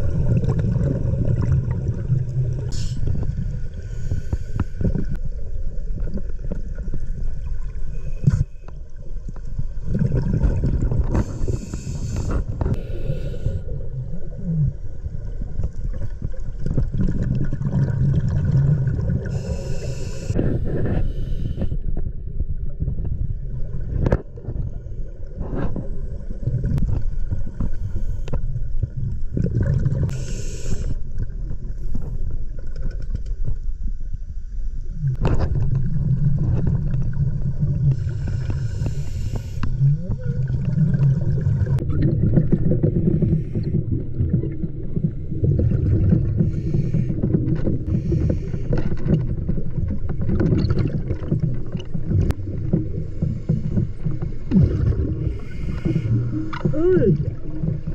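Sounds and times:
underwater rumble and bubbles: 0.0 - 57.9
scuba regulator breaths hissing: 3.8 - 5.1, 11.1 - 13.7, 19.2 - 21.8, 30.1 - 31.0, 37.9 - 39.8, 46.4 - 47.2, 47.8 - 48.8, 55.2 - 56.8.

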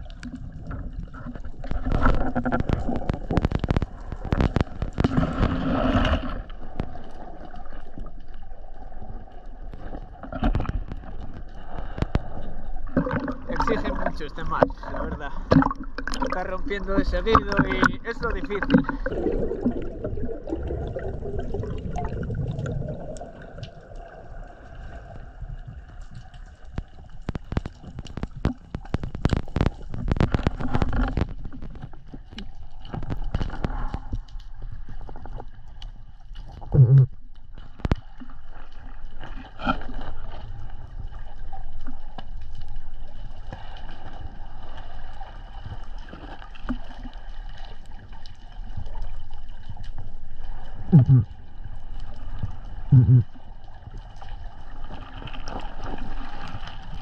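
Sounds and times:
splashes and knocks: 0.0 - 7.0, 9.7 - 22.7, 26.7 - 34.2
muffled underwater ambience: 0.0 - 57.0
water sloshing and gurgling: 0.0 - 57.0.

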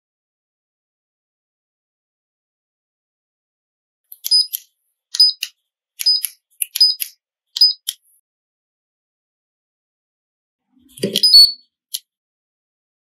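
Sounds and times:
keypad button clicks: 10.9 - 11.6
short high beeps: 11.0 - 11.6.

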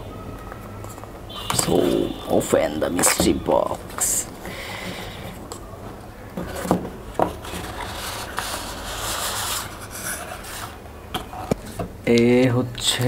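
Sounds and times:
cardboard tray sliding and scraping: 6.4 - 10.8.

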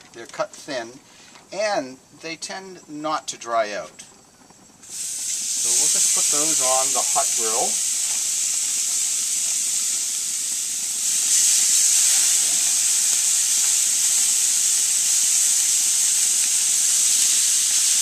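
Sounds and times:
chicken sizzling on a grill: 4.8 - 18.0.

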